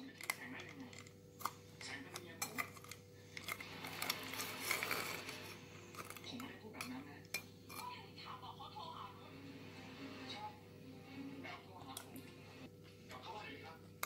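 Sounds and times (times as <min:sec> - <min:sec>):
spoon clinking ice in metal bowl: 0:00.0 - 0:07.9.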